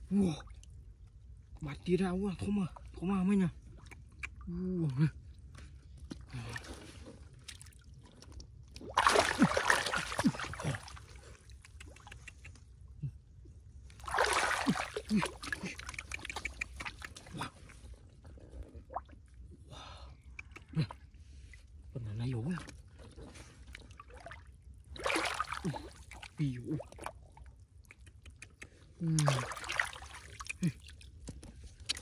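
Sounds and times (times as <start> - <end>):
water splashing: 8.8 - 12.4, 14.0 - 17.8, 22.6 - 27.1, 29.0 - 31.1.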